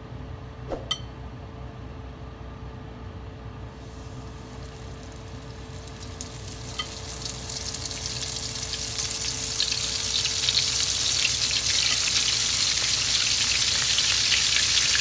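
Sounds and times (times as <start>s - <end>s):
food sizzling in hot oil: 3.7s - 15.0s.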